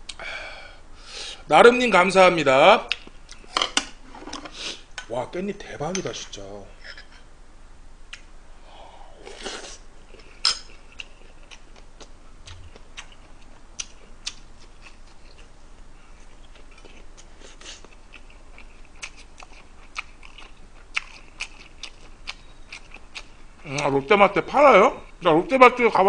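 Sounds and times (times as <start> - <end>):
chewing and mouth smacks: 9.4 - 15.5, 16.2 - 23.4.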